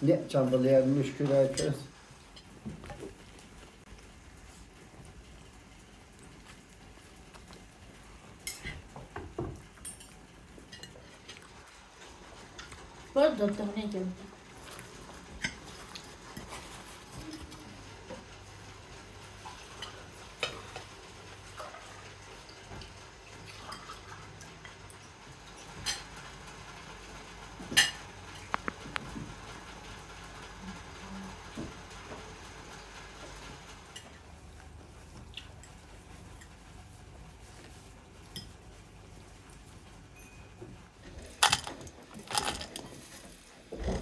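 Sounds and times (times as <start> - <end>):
dishes and cutlery clinking: 8.3 - 11.4, 15.3 - 17.6, 27.7 - 28.6.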